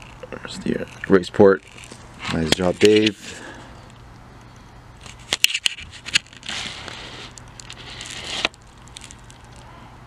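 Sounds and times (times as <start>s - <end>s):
rustling scrape: 5.0s - 9.6s.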